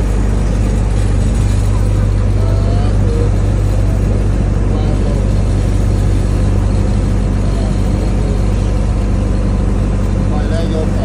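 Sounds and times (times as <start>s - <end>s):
boat engine droning: 0.0s - 11.0s.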